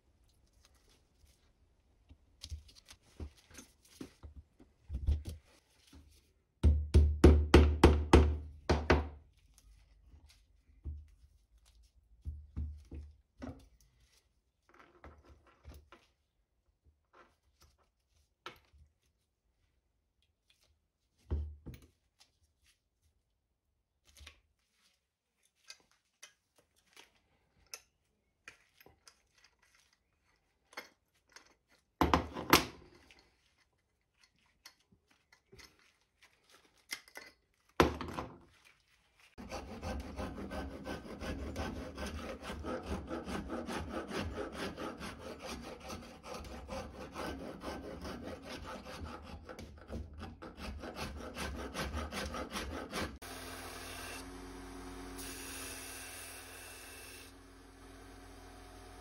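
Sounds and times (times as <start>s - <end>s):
metal file rasping on wood: 39.4s - 53.2s.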